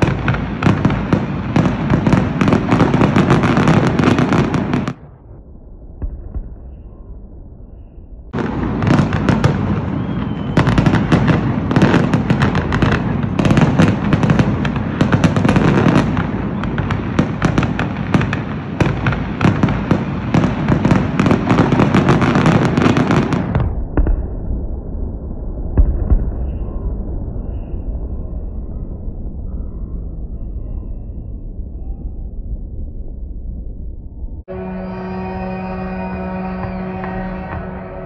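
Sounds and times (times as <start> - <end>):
fireworks bursting and crackling: 0.0 - 5.3, 8.4 - 24.8, 34.5 - 38.0.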